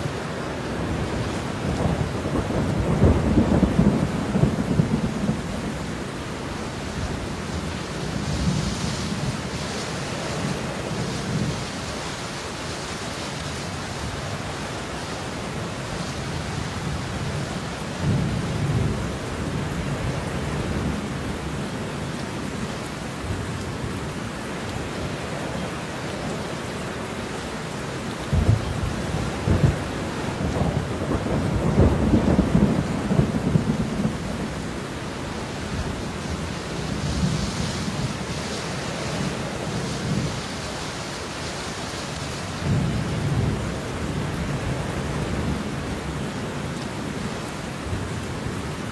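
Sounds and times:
steady rain: 0.0 - 48.9
rolling thunder: 0.9 - 5.9, 28.2 - 34.7.

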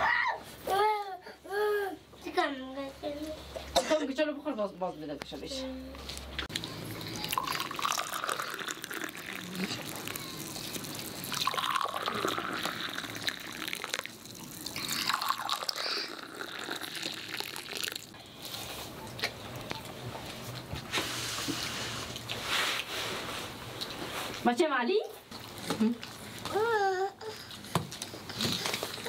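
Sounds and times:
tea pouring into glass mugs: 7.2 - 18.1.

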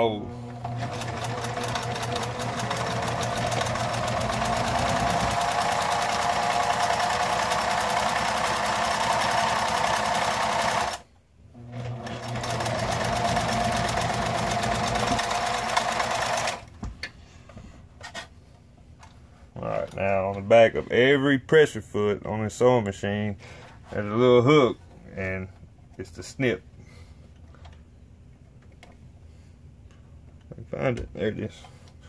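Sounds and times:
sewing machine stitching: 0.4 - 11.0, 11.6 - 16.7.

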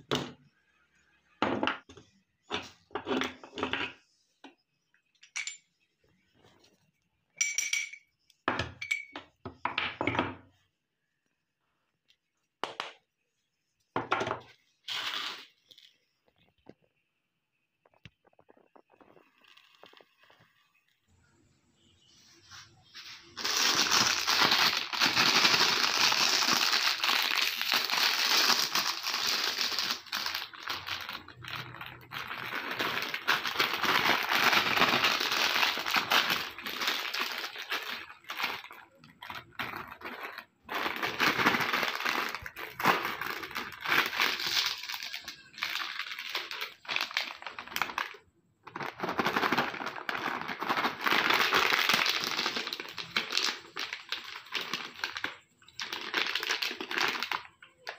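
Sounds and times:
chip packets crinkling: 23.3 - 57.9
plastic pouch being opened: 23.3 - 57.9.

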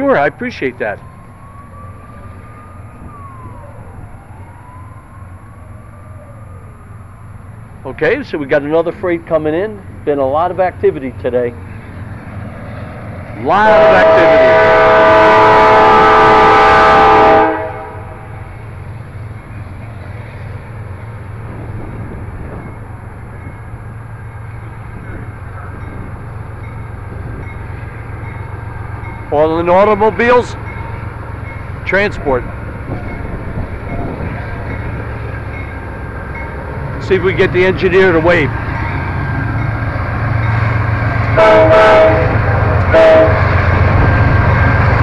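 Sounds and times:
freight train rumbling past: 0.0 - 45.0
faint siren wailing: 0.1 - 8.0.

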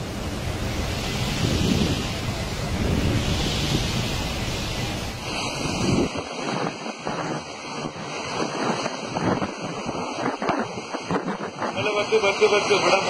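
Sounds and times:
heavy driving rain: 0.0 - 6.6, 11.1 - 13.0
strong wind: 0.0 - 13.0
wind buffeting microphone: 0.0 - 13.0.

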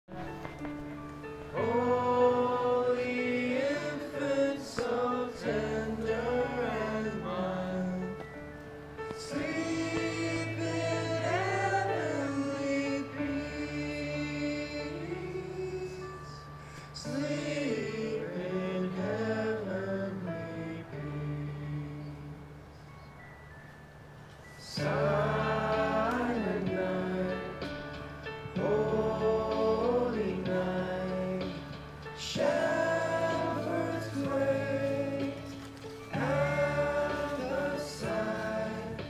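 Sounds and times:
group singing a carol: 1.5 - 22.4, 24.6 - 39.0.

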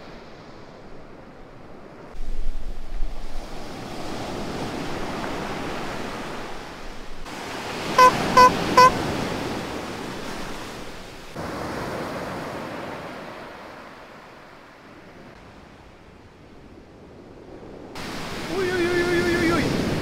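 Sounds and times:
short loud beeps: 8.0 - 9.0
surf breaking on beach: 18.0 - 20.0.

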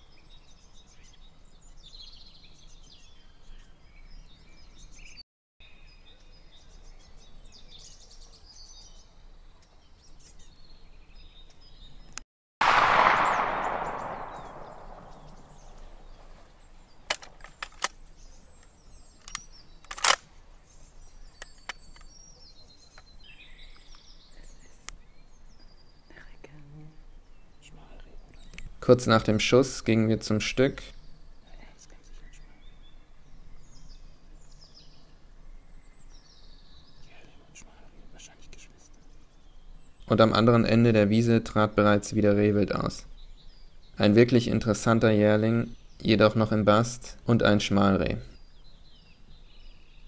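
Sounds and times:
birds singing: 0.0 - 50.0
sharp clicks: 12.1 - 15.8, 17.1 - 18.0, 19.2 - 20.3
rifle shot with echo: 12.6 - 16.2.

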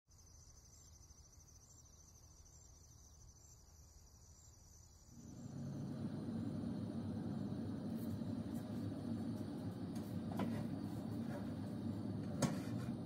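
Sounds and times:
crickets chirring: 0.1 - 13.0
low hum: 5.2 - 13.0.

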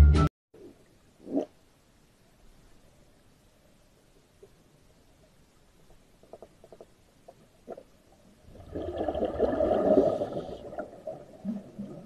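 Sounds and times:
exhaled air bubbling underwater: 6.2 - 12.0.

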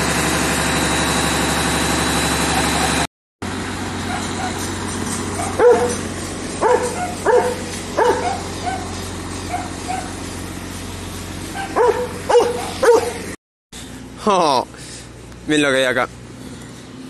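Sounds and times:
engine idling: 0.0 - 17.0
dog yipping: 4.0 - 4.7, 5.4 - 6.0, 6.6 - 10.2, 11.6 - 13.2
dog barking: 4.1 - 4.6, 5.4 - 6.0, 6.6 - 8.9, 9.5 - 10.2, 11.6 - 13.2.

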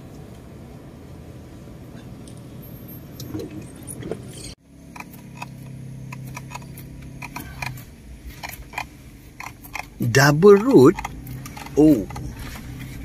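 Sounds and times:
low engine hum: 0.0 - 13.0
sharp ticks and rattles: 4.7 - 12.9
car cabin rumble: 4.9 - 13.0.

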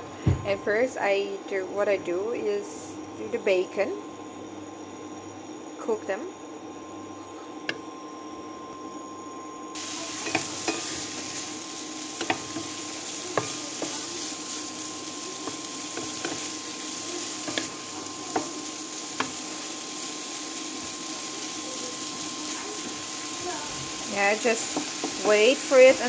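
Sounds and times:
bacon sizzling in frying pan: 9.8 - 26.0.

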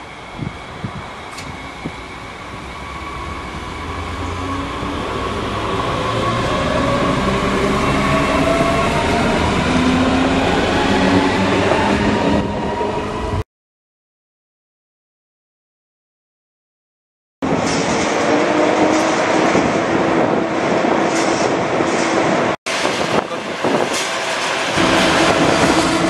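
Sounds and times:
train wheels rumbling on rails: 0.0 - 12.7, 17.4 - 26.0
electric train whine: 0.0 - 13.4, 22.7 - 26.0.

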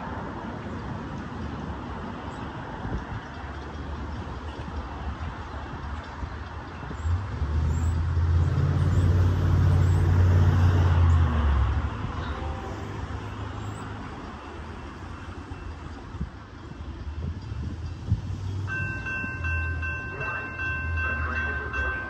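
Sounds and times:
vehicle engine passing by: 7.0 - 12.2.

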